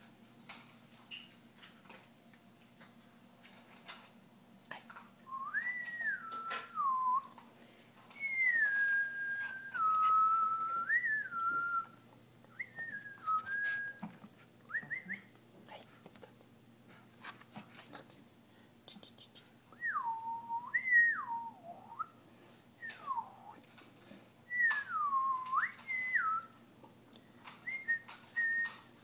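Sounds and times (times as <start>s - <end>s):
person whistling: 5.3s - 7.4s, 8.2s - 14.0s, 14.7s - 15.3s, 19.8s - 22.2s, 22.8s - 23.6s, 24.5s - 26.6s, 27.7s - 28.8s.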